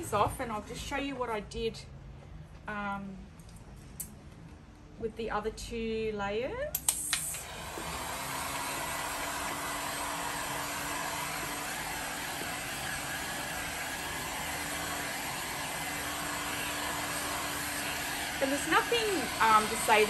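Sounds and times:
heat gun blowing air: 6.8s - 20.0s.

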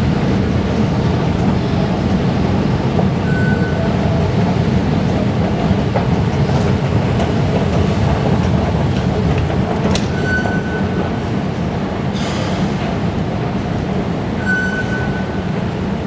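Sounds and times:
metro station low rumble: 0.0s - 16.0s
short high beep: 3.2s - 3.9s, 14.4s - 15.3s.

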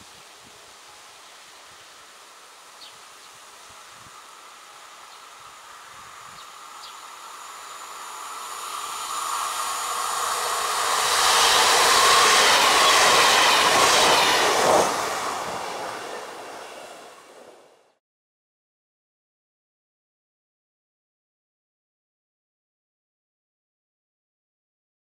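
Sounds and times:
electric train passing: 0.0s - 18.0s
wheel-on-rail noise: 0.2s - 17.9s.

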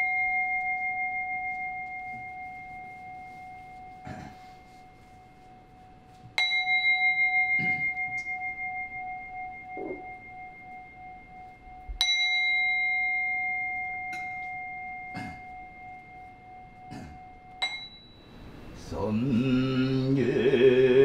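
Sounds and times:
bowl bell ringing: 0.0s - 20.1s.

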